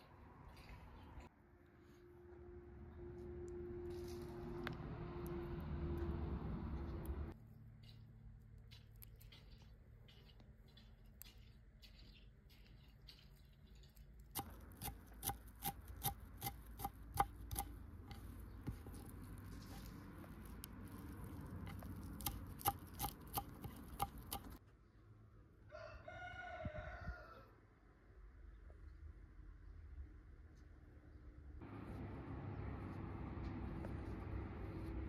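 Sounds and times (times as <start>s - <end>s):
rooster crowing: 25.7s - 27.6s.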